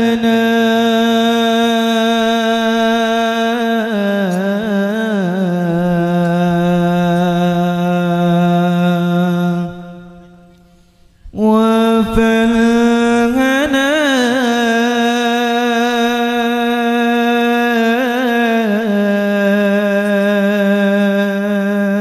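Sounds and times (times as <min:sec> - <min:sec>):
person chanting long note: 0:00.0 - 0:10.7.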